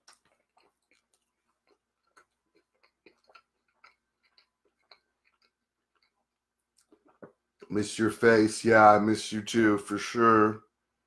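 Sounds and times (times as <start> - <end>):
chewing and mouth clicks: 0.0 - 7.8.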